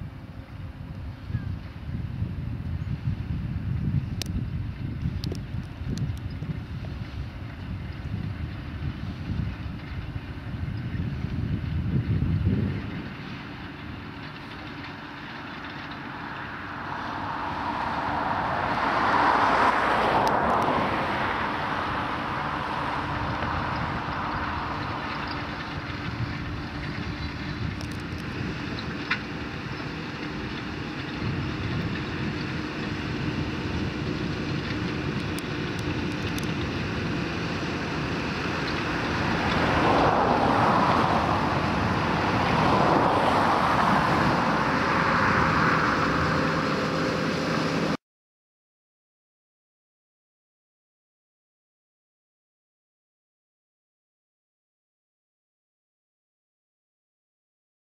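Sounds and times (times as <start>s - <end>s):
tractor engine under load: 0.0s - 48.0s.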